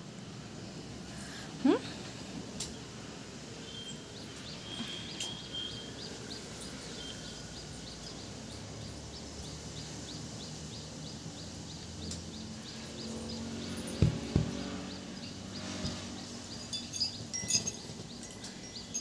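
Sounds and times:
outdoor background noise: 0.0 - 19.0
faint high chirp: 3.6 - 9.1.

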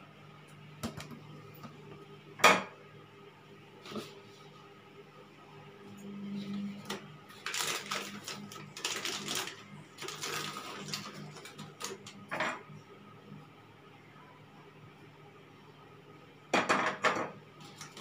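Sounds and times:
plastic packaging crinkling: 7.3 - 12.1.

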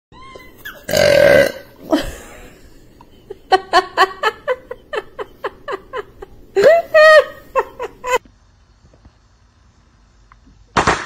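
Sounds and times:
baby burping: 0.8 - 1.8.

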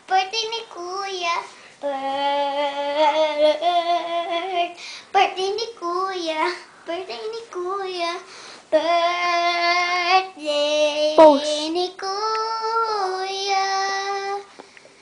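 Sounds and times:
girl singing long notes: 1.8 - 4.8, 8.7 - 14.5.

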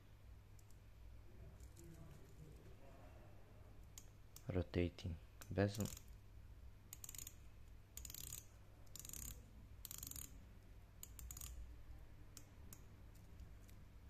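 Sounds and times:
watch bezel clicking: 5.4 - 6.2, 6.9 - 7.4, 8.0 - 10.4, 11.0 - 11.6.

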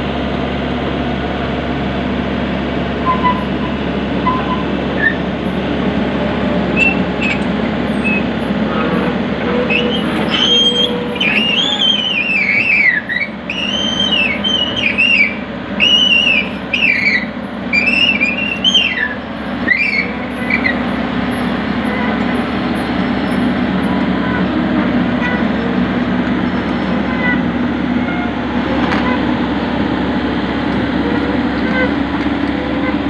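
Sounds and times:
excavator diesel engine running: 0.0 - 33.0
hydraulics working: 0.2 - 33.0
high whistle-like chirps: 9.7 - 17.2.

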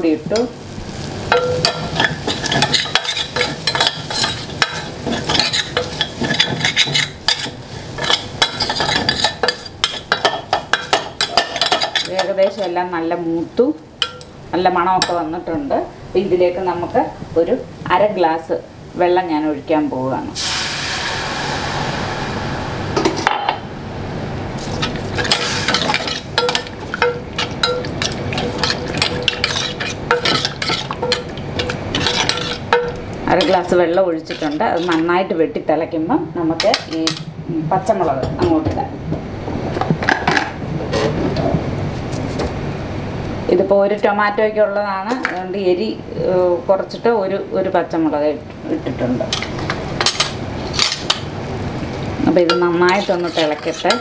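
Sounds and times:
food sizzling in a pan: 0.0 - 12.3, 20.2 - 23.3, 24.4 - 35.0
spoon scraping a steel pan: 24.6 - 33.6, 52.5 - 54.0.

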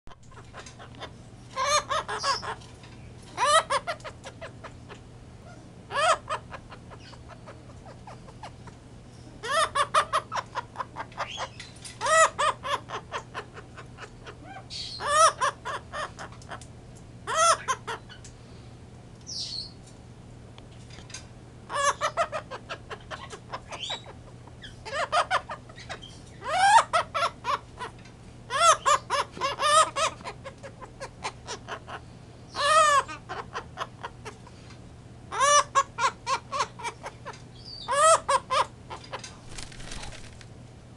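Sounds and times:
parrot laughing calls: 0.2 - 2.6, 3.4 - 5.0, 5.9 - 8.7, 9.4 - 16.6, 17.2 - 18.1, 21.7 - 32.0, 32.6 - 34.4, 35.3 - 39.0.

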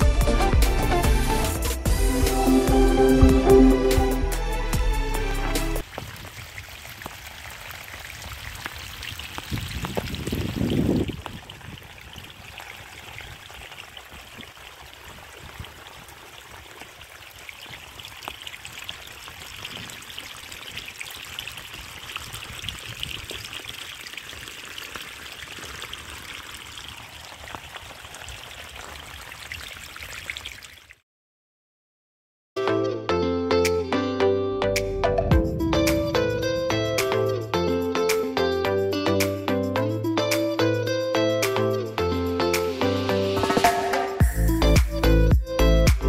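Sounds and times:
water splashing and trickling: 0.0 - 31.0
water dripping: 5.8 - 31.0
low rumble: 35.3 - 37.2.

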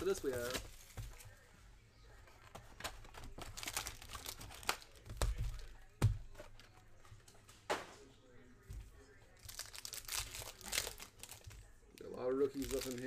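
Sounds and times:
plastic wrapping crinkling and tearing: 0.0 - 1.0, 3.0 - 5.7, 9.4 - 13.0.

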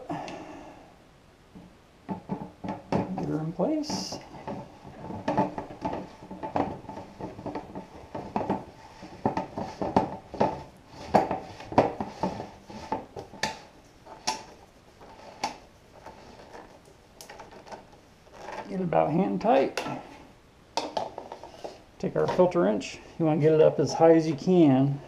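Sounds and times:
plastic canister clicking and knocking: 1.6 - 17.9, 20.8 - 21.5.

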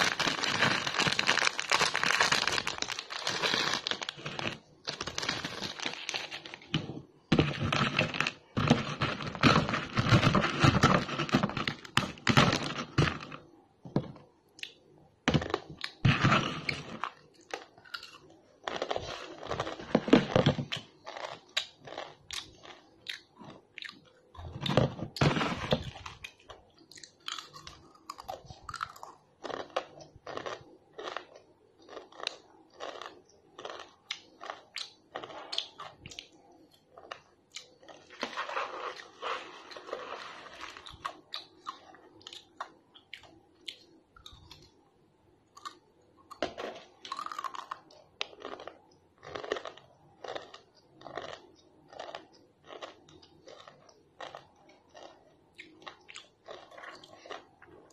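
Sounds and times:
dry noodle pieces rustling: 0.0 - 13.3, 38.0 - 41.0
plastic snack packet crinkling: 0.0 - 13.5, 15.3 - 22.8, 24.6 - 36.1, 37.0 - 42.6, 46.4 - 57.9
crunchy chewing close up: 15.5 - 24.2, 25.9 - 44.7, 45.6 - 57.9.

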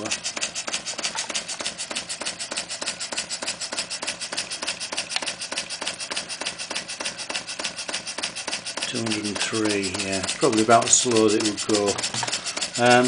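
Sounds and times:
steam engine exhaust puffing: 0.0 - 13.0.

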